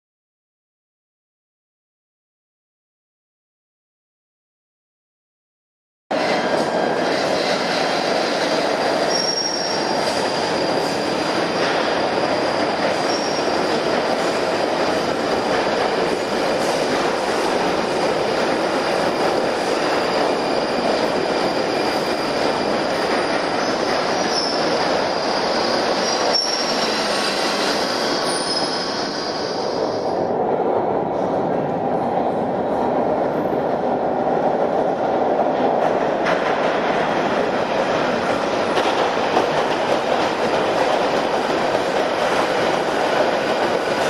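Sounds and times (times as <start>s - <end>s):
train wheels rumbling on rail: 6.1s - 44.0s
high-pitched wheel squeals: 9.1s - 11.9s, 24.2s - 24.7s, 25.9s - 29.7s.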